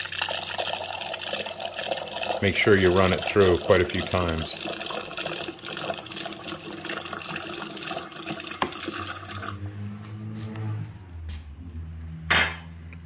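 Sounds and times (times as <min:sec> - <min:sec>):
water running into mug: 0:00.0 - 0:09.6.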